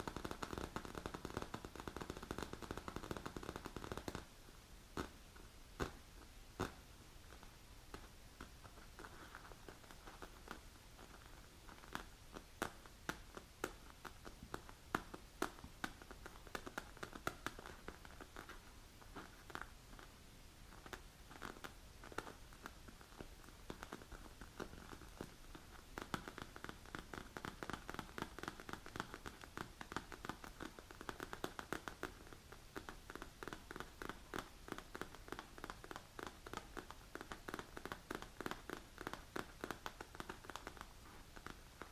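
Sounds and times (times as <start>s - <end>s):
fingernails tapping on padded leather: 20.9s - 41.9s.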